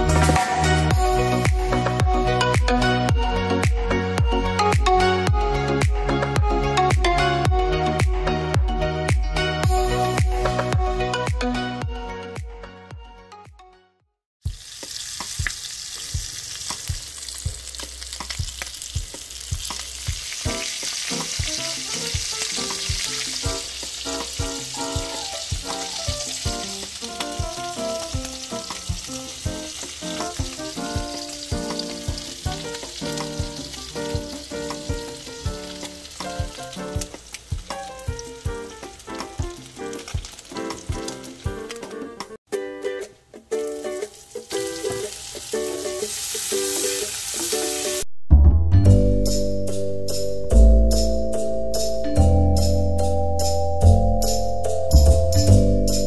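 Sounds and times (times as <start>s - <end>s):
light plucked music: 0.0s - 13.9s, 14.5s - 56.0s
vegetables sizzling in hot oil: 14.4s - 41.9s, 43.6s - 48.1s.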